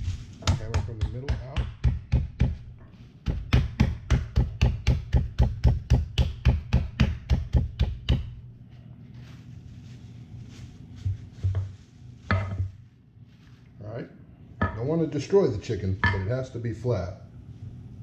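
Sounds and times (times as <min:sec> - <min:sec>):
meat mallet pounding chicken: 0:00.4 - 0:08.4.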